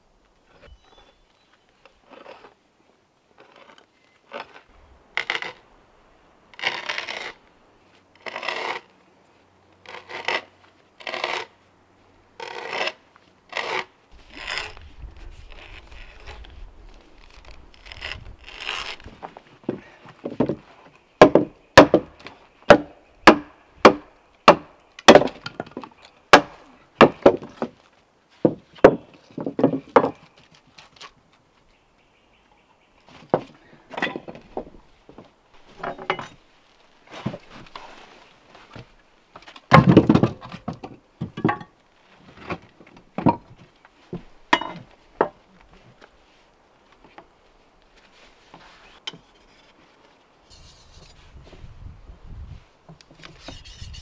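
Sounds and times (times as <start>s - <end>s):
tool scraping wood: 6.6s - 7.4s, 8.2s - 8.9s, 9.8s - 11.5s, 12.4s - 16.6s, 17.2s - 19.4s, 50.5s - 51.4s, 53.2s - 54.0s
sharp strikes on wood: 21.2s - 25.6s, 26.3s - 27.5s.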